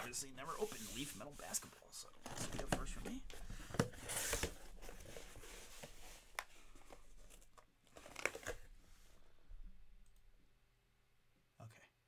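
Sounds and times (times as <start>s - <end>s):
cardboard box rustling: 0.0s - 8.7s.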